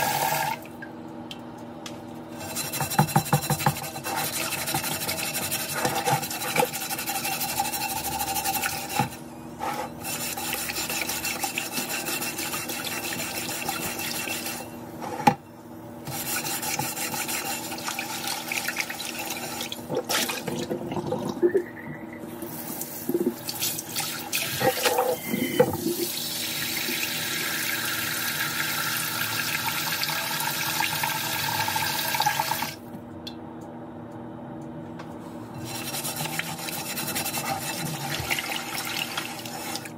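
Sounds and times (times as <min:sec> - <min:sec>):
sponge scrubbing a pan: 0:02.4 - 0:15.3, 0:16.1 - 0:19.8, 0:35.6 - 0:39.9.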